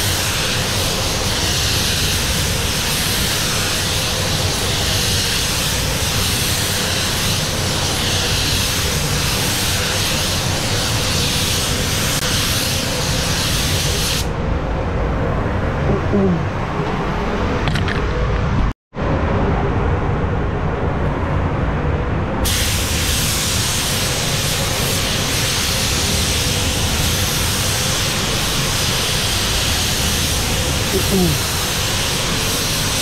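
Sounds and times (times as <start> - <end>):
rushing air hiss: 0.0 - 14.4, 22.4 - 33.0
low rumble: 14.3 - 23.1.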